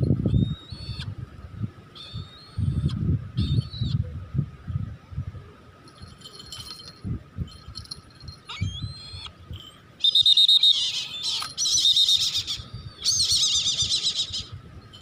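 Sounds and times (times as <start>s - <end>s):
bird of prey squealing cries: 10.0s - 14.6s.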